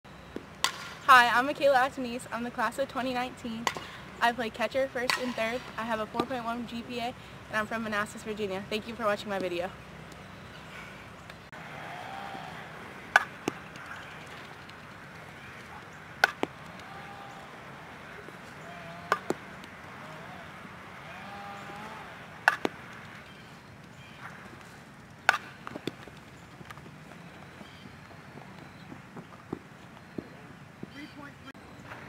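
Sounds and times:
bat knocking ball: 0:00.3 - 0:01.0, 0:03.6 - 0:04.0, 0:13.1 - 0:15.0, 0:15.6 - 0:17.5, 0:18.2 - 0:19.9, 0:21.6 - 0:23.4, 0:24.2 - 0:26.9.

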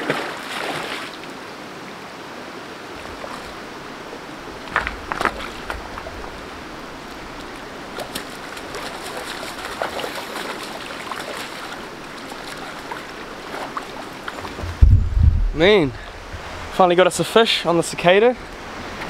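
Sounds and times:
fish splashing in a net: 0:00.0 - 0:01.1, 0:08.0 - 0:14.5
river running over stones: 0:00.0 - 0:19.0.

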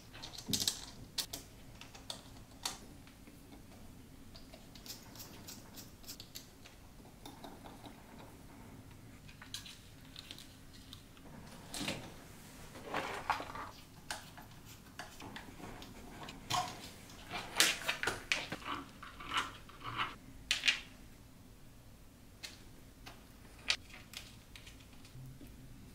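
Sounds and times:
plastic parts and screws clicking: 0:00.1 - 0:02.8, 0:09.2 - 0:11.2.

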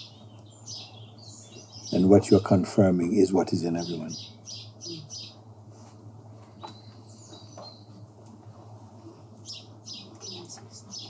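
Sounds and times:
steady low hum: 0:00.0 - 0:11.0
faint bird chirps: 0:03.8 - 0:05.4.

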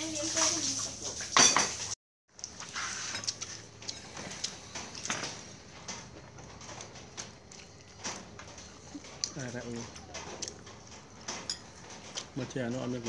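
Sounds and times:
spoons clinking on ceramic plates: 0:01.4 - 0:01.8.

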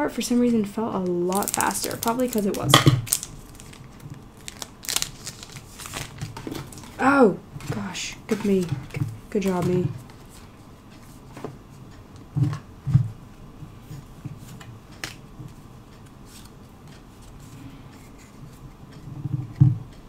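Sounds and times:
cards clicking and rustling: 0:01.3 - 0:07.0.

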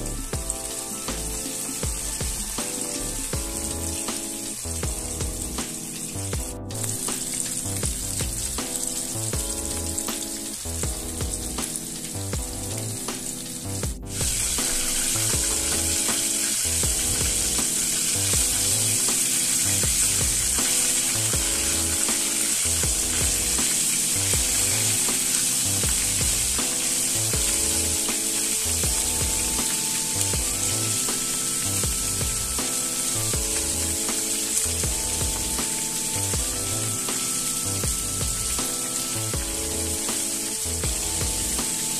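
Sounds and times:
background music with bass line: 0:00.0 - 0:41.9
chicken deep-frying in oil: 0:00.0 - 0:41.9.

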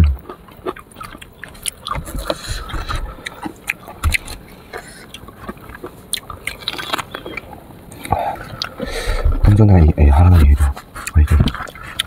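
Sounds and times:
biting and chewing fruit: 0:00.0 - 0:12.0
wet clicks and crunches: 0:05.7 - 0:08.8.

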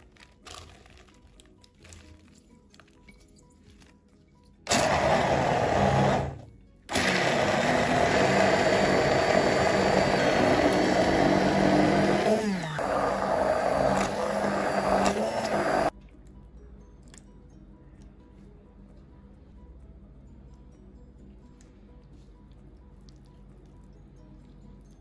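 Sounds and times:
immersion blender running: 0:04.7 - 0:15.9.

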